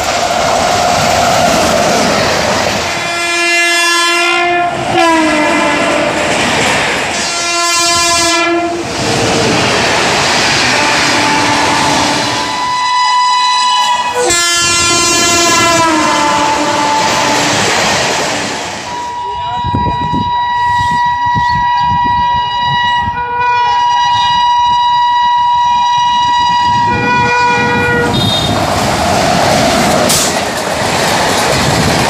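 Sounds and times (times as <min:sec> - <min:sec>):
train coaches clattering on rails: 0:00.0 - 0:22.8, 0:25.3 - 0:32.0
train horn blasts: 0:03.0 - 0:06.3, 0:07.1 - 0:08.9, 0:10.6 - 0:17.6, 0:18.9 - 0:28.6.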